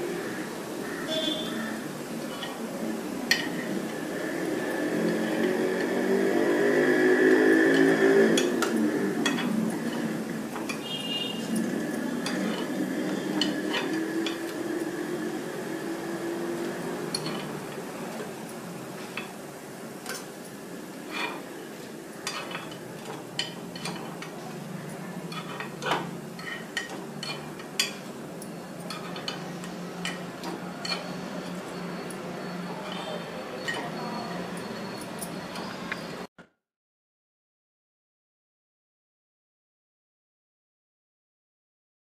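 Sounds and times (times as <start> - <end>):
food sizzling: 0.0 - 34.6
metal utensil clicking on pan: 22.2 - 24.4, 25.3 - 31.1.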